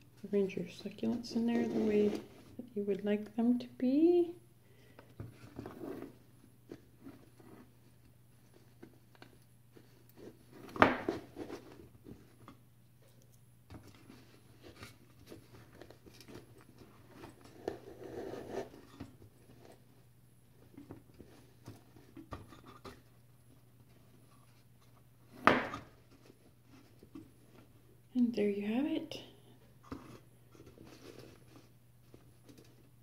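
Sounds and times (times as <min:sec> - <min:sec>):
rustling and crunching: 0:05.2 - 0:28.0, 0:29.7 - 0:33.0.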